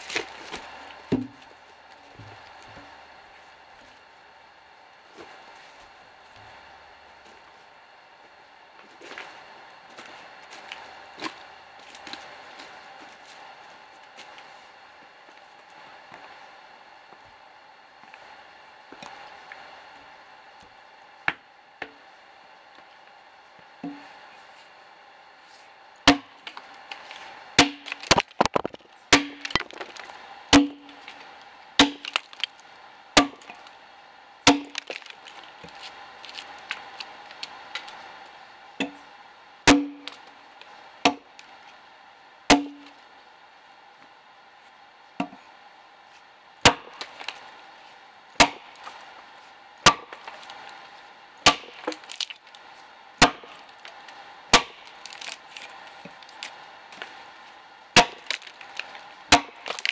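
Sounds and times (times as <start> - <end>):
axe chopping into log: 26.1 - 26.3, 27.6 - 29.9, 30.6 - 30.9, 31.8 - 32.2, 34.5 - 35.0, 46.6 - 47.2, 48.4 - 48.7, 49.9 - 50.2, 51.4 - 52.0, 53.2 - 53.5, 54.5 - 54.8, 58.0 - 58.4, 59.3 - 59.9.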